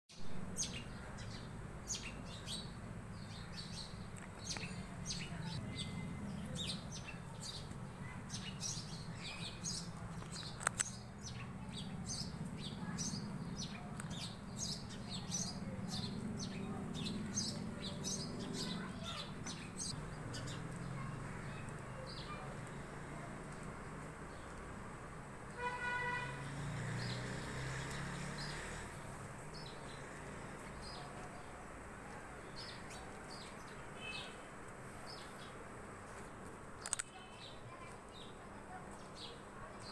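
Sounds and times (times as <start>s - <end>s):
small birds chirping: 0.1s - 39.9s
sharp click: 10.2s - 11.0s, 36.8s - 37.1s.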